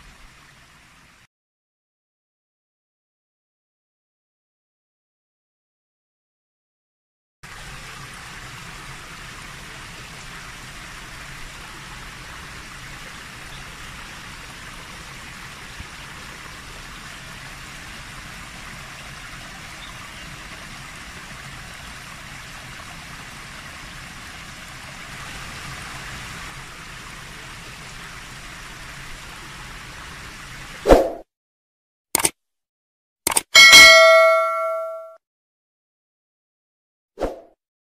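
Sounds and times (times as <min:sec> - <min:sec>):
rushing white water: 0:07.5 - 0:30.9.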